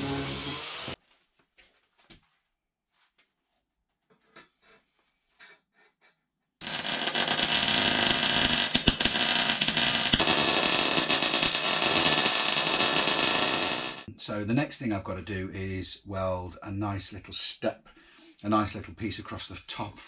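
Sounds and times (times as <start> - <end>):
welder arc crackling: 6.6 - 14.1.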